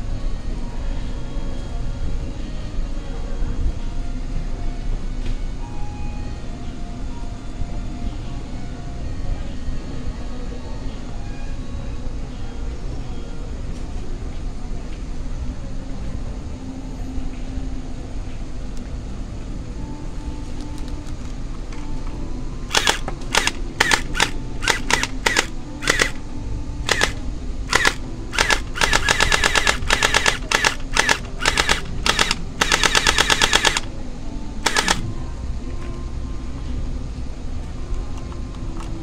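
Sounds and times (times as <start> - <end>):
steady low hum: 0.0 - 39.0
gel blaster firing: 22.7 - 26.2, 26.9 - 33.9.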